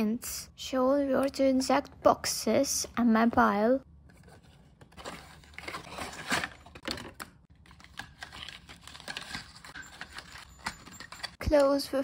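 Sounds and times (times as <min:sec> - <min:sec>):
card and plastic rustling: 0:04.0 - 0:11.4
cardboard packaging being opened: 0:04.1 - 0:11.4.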